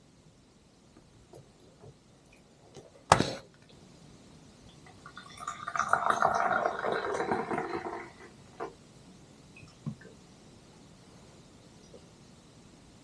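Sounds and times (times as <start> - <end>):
coffee pouring into cup: 4.8 - 8.8.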